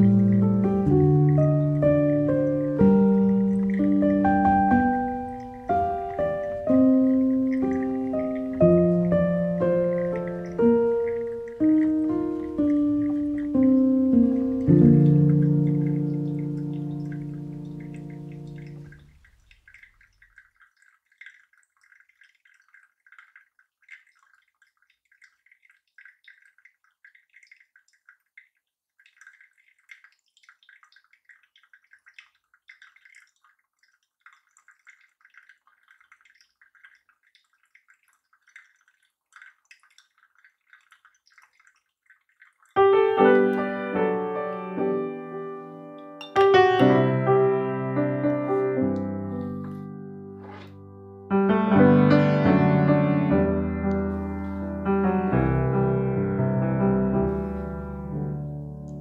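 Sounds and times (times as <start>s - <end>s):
piano music: 0.0s - 19.0s, 42.8s - 59.0s
water trickling onto coffee grounds: 0.0s - 47.3s, 48.0s - 50.8s, 53.6s - 56.4s, 57.2s - 59.0s.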